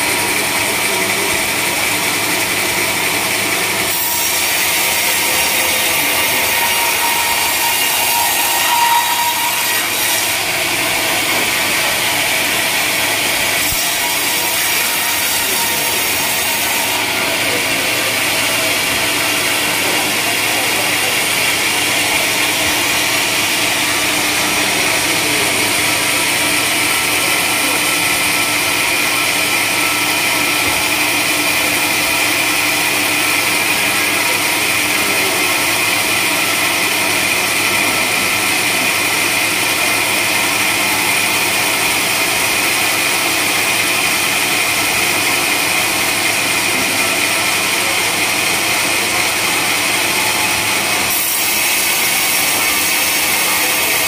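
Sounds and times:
band sawmill cutting log: 0:00.0 - 0:54.0.

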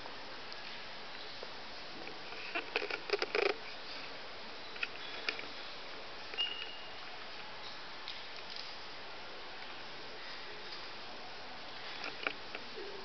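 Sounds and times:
steady hiss: 0:00.0 - 0:13.0
handling clicks and rustles: 0:02.0 - 0:04.1, 0:11.8 - 0:12.8
short high squeak: 0:06.4 - 0:07.0.

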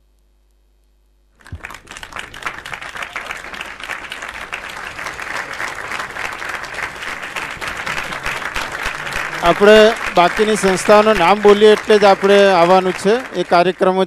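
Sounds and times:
faint steady hum: 0:00.0 - 0:13.5
audience applauding: 0:01.4 - 0:14.0.

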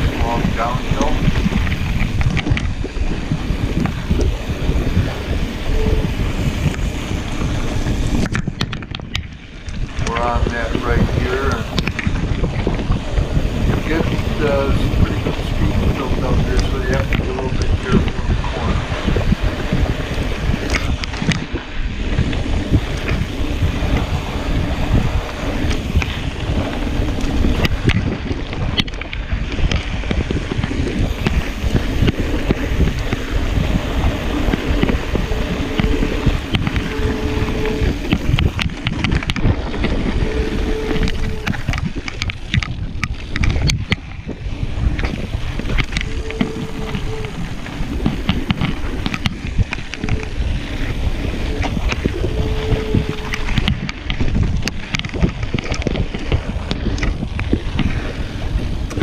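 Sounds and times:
bike rattling and clicking: 0:00.0 - 0:59.0
wind rush on microphone: 0:00.0 - 0:59.0.

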